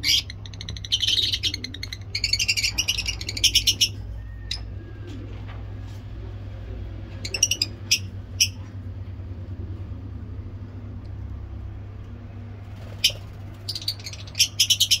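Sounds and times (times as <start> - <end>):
lovebirds chirping: 0.0 - 4.8, 7.1 - 8.7, 12.9 - 15.0.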